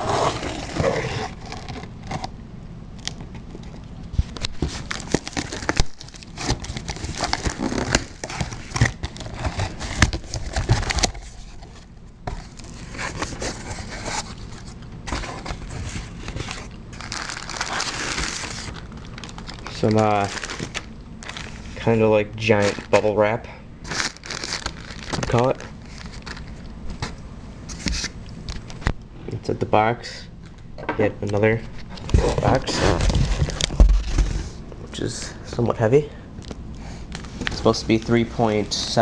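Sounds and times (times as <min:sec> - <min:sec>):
packing tape peeling: 0:00.0 - 0:02.3, 0:04.3 - 0:11.4, 0:12.5 - 0:21.6, 0:23.8 - 0:28.7
plastic packing crinkling: 0:03.0 - 0:23.2, 0:23.8 - 0:28.9.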